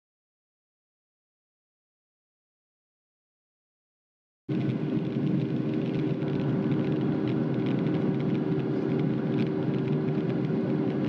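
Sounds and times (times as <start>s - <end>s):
airliner cabin noise: 4.5s - 11.0s.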